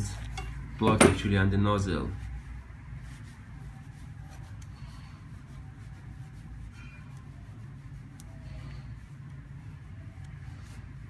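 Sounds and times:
pliers ticking and rubbing on metal: 0.1 - 1.3.

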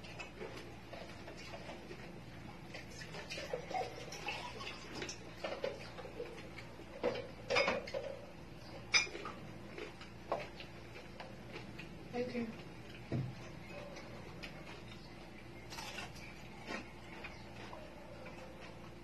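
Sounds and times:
tableware clinking: 7.0 - 8.2, 8.9 - 9.3
person chewing: 8.8 - 15.0, 15.6 - 19.0.

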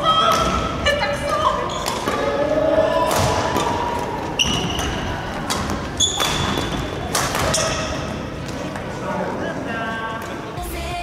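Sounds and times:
rackets hitting shuttlecock: 0.2 - 8.9
shoes squeaking on wooden floor: 3.6 - 8.8.

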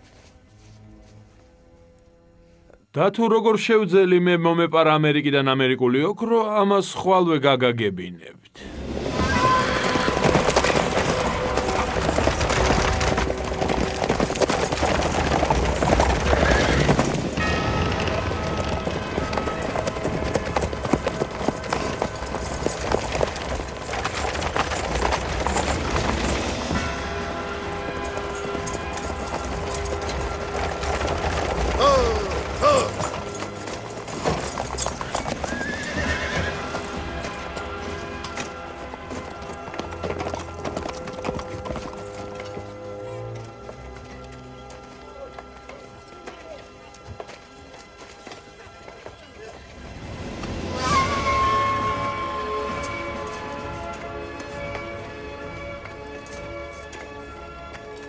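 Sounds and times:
film music: 0.0 - 5.3, 8.6 - 58.0
horses galloping: 8.8 - 58.0
horse whinnying: 9.1 - 11.0, 16.2 - 17.2, 31.7 - 33.4, 34.5 - 36.8, 50.7 - 53.2.

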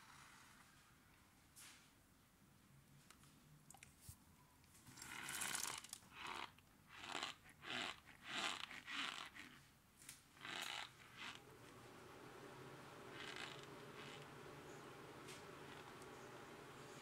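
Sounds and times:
cornstarch crunching and squeaking: 5.1 - 9.6.

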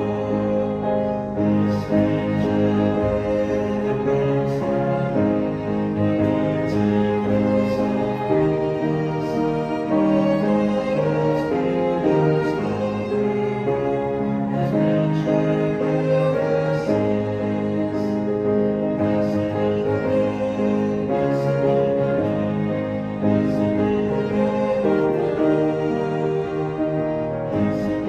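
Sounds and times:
slow background music: 0.0 - 28.0.

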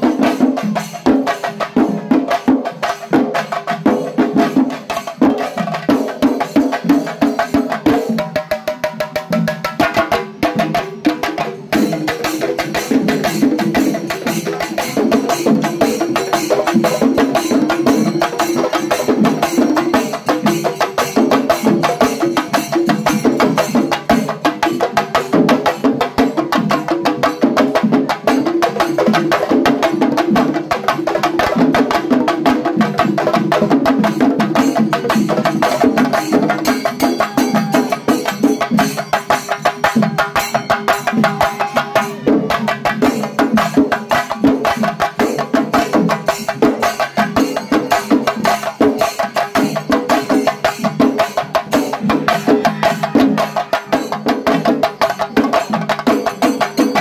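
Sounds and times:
drums beaten with sticks: 0.0 - 57.0
held pitched tone: 36.8 - 38.6.

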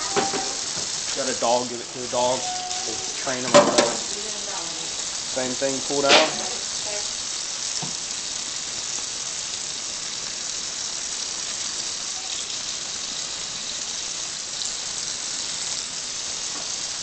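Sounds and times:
tap water splashing into sink: 3.5 - 4.1.

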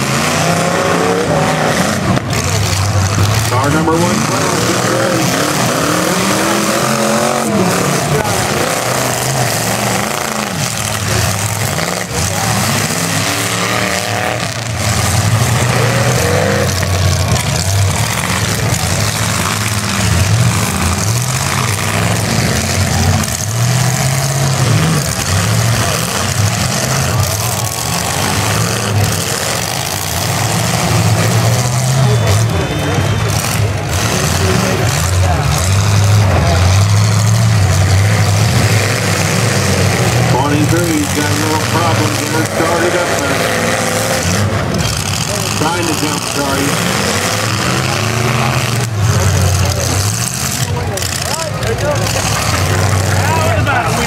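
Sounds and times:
car engines revving hard: 0.0 - 54.0.

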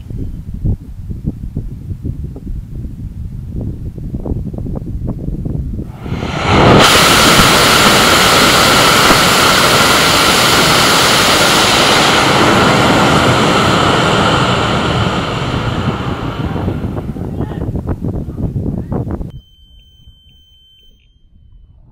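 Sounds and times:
rocket motor roaring: 5.9 - 18.2.

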